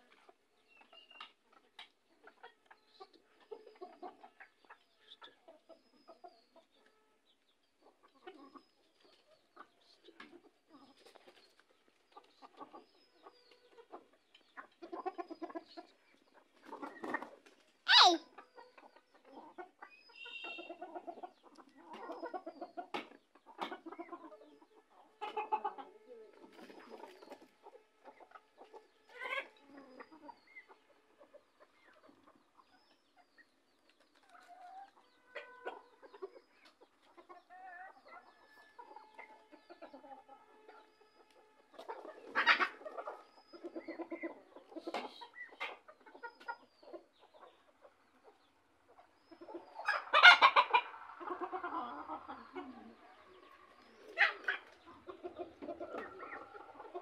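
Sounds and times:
chickens clucking: 0.0s - 57.0s.

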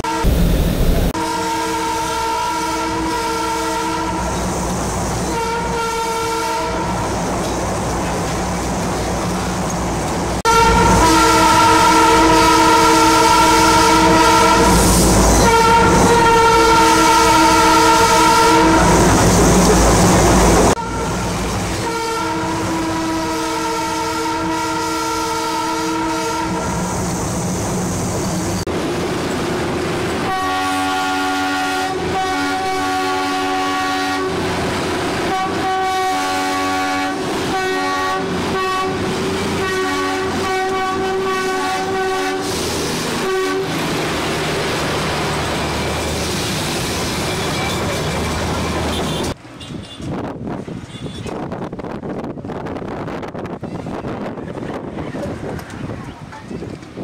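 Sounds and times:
train horn blast: 0.0s - 0.4s, 1.2s - 4.5s, 5.2s - 7.1s, 10.4s - 19.2s, 20.7s - 26.9s, 30.2s - 34.5s, 35.1s - 44.0s, 48.8s - 50.1s
train rumble: 0.0s - 57.0s.

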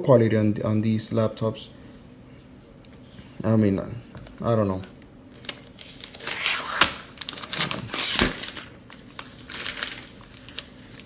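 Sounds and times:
plastic wrap crinkling: 4.2s - 11.0s.

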